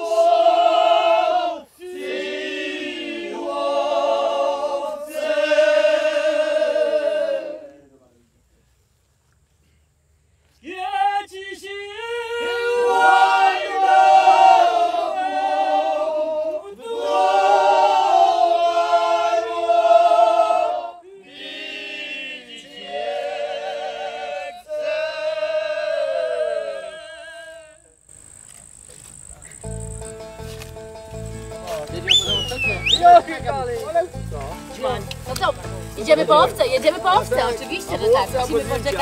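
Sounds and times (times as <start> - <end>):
men singing a cappella: 0.0 - 7.8, 10.7 - 27.8.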